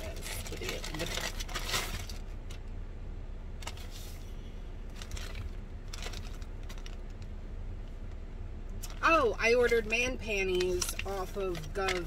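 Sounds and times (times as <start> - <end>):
plastic packaging crinkling: 0.0 - 2.6, 4.9 - 7.3, 10.4 - 12.0
low steady rumble: 0.0 - 12.0.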